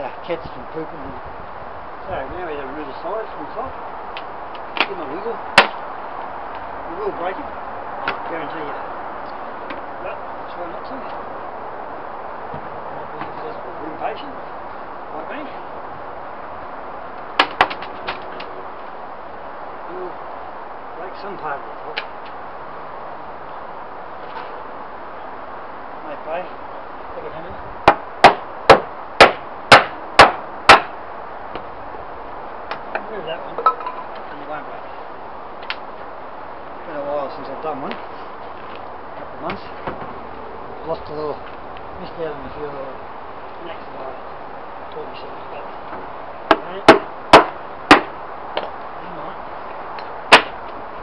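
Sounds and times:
hammer striking wood: 5.6s - 5.8s, 17.4s - 18.2s, 27.8s - 30.9s, 46.5s - 48.7s, 50.3s - 50.6s
knocks on wooden panels: 17.4s - 18.2s, 27.8s - 30.9s, 46.5s - 48.7s.

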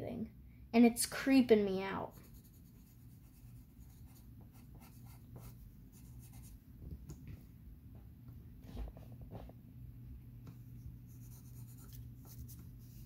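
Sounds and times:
pencil scratching on paper: 2.1s - 6.5s, 11.1s - 13.0s.

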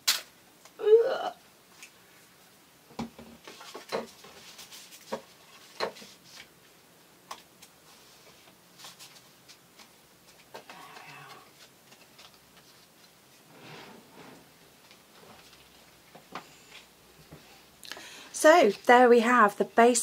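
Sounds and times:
paper rustling: 3.4s - 6.5s, 7.9s - 15.8s.

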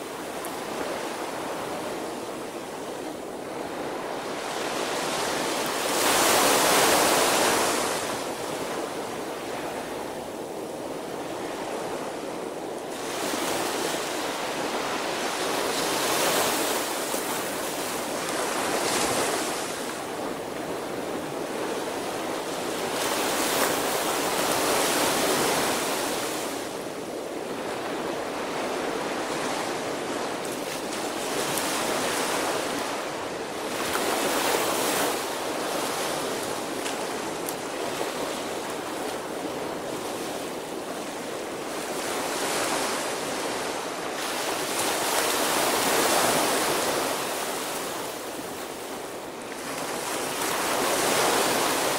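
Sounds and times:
small waves breaking on beach: 0.0s - 51.9s.

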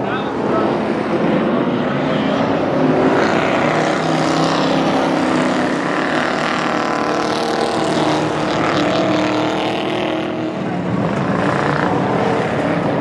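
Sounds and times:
race car engines droning: 0.0s - 13.0s.

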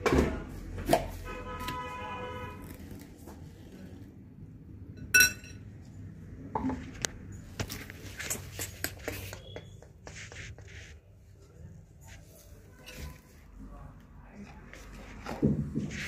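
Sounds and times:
ringing metal clink: 5.2s - 5.6s.

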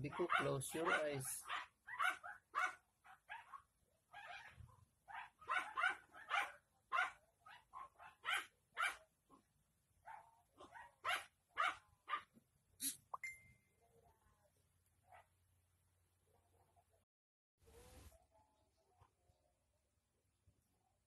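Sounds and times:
dog barking in sharp yaps: 0.1s - 3.6s, 4.2s - 9.0s, 10.1s - 13.0s.

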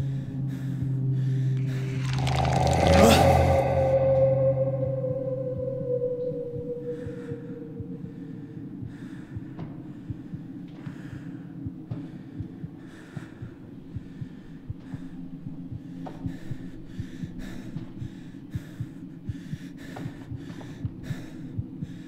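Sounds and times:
low drone: 0.0s - 9.3s
heavy frightened breathing: 0.0s - 22.0s.

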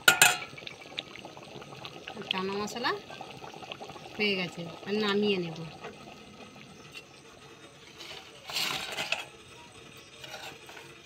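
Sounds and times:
metal pan clattering and scraping: 0.0s - 0.5s, 8.0s - 9.3s, 10.2s - 10.9s.

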